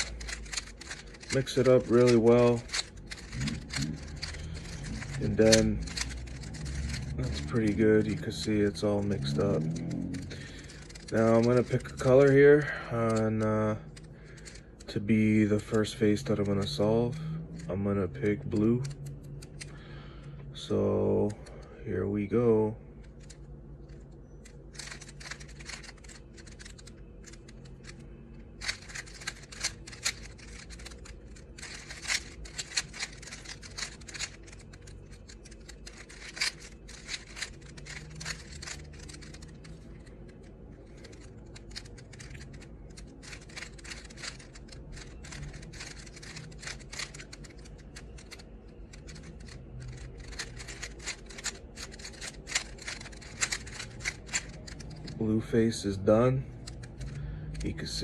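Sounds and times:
plastic puzzle cube clicking: 0.0s - 14.9s, 18.3s - 19.8s, 23.0s - 28.0s, 28.6s - 55.2s, 56.5s - 58.0s
steady low hum: 0.0s - 58.0s.

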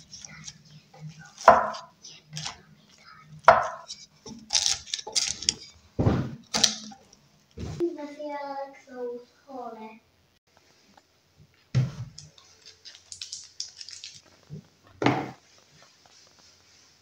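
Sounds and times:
dull thump: 6.0s - 6.4s.

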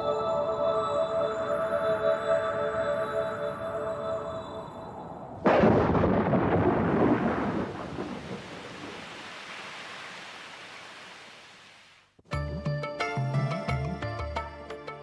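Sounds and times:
thunderclap rumbling: 5.0s - 9.5s.

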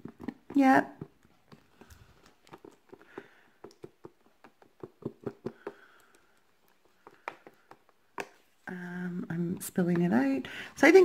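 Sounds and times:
stick stirring in plastic tub: 0.0s - 11.0s.

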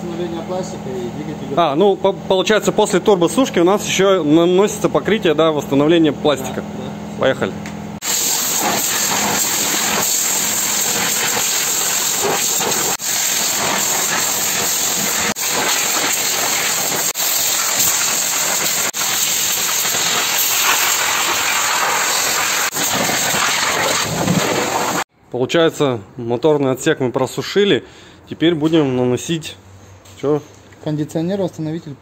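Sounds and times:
dryer blowing air through hose: 8.0s - 25.0s.

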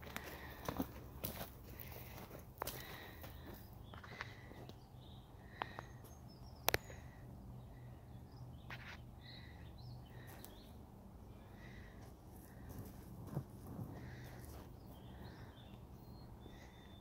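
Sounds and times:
bird calls: 1.8s - 13.0s, 13.9s - 17.0s.

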